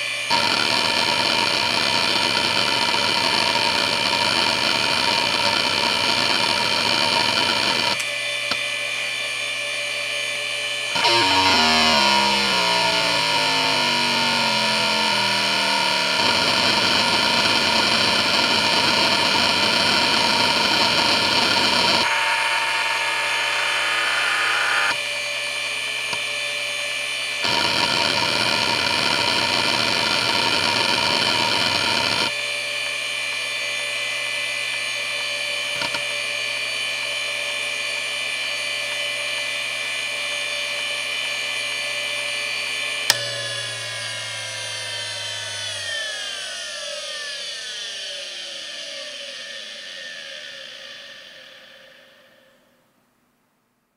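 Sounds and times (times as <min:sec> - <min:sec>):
hard drive spindle whine: 0:00.0 - 0:52.5.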